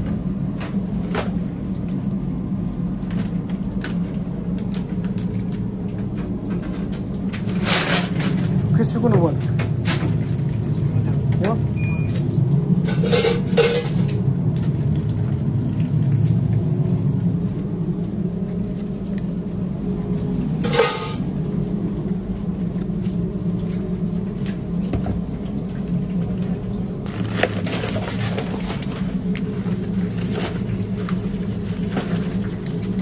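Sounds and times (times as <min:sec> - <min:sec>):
steady low hum: 0:00.0 - 0:33.0
metal kitchenware clanking: 0:12.9 - 0:14.1, 0:20.6 - 0:21.3.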